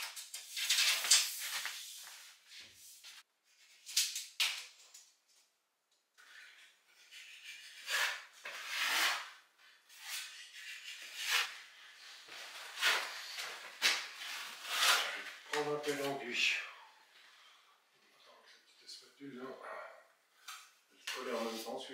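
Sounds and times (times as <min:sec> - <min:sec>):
plastering knife scraping filler: 0:06.2 - 0:15.5.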